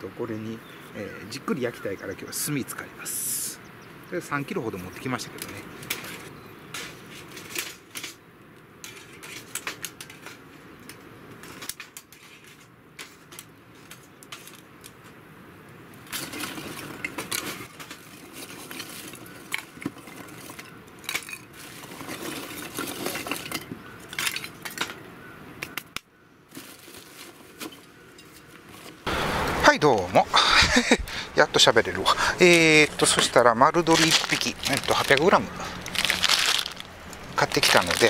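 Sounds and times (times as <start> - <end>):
charcoal clinking against steel: 30.7 - 38.0.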